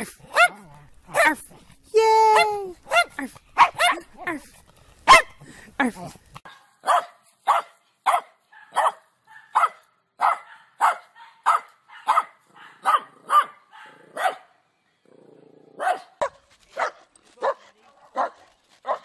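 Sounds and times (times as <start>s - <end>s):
small dog barking: 0.3s - 1.4s, 2.4s - 4.1s, 5.1s - 5.4s, 6.4s - 14.5s, 15.8s - 19.0s.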